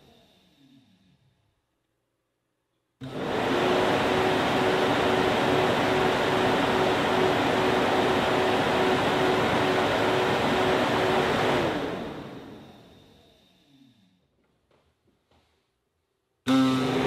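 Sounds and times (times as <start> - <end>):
cooling fan whirring: 3.0 - 13.0, 16.5 - 17.0.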